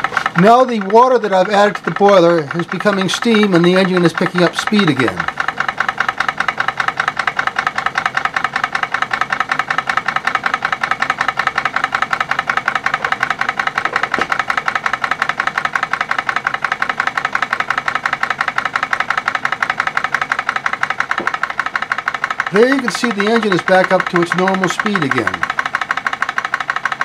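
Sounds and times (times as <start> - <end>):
model steam engine running: 0.0 - 27.0.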